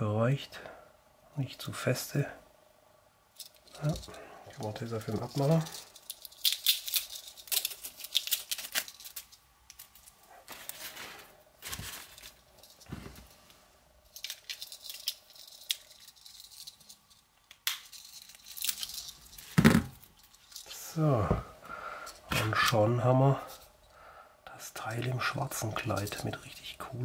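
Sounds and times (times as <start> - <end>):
small items set down: 5.0 - 13.4, 17.8 - 21.5
paper towel crinkling: 10.3 - 13.5.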